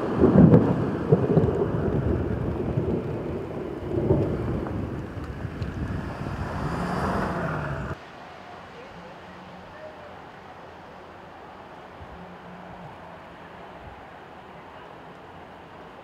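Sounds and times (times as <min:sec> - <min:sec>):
thunder rumbling: 0:00.0 - 0:08.0.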